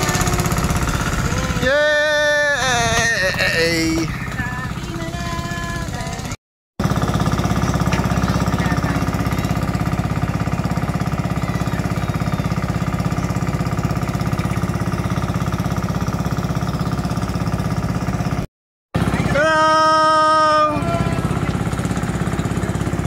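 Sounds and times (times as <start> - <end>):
engine running with pulsing beat: 0.0 - 23.0.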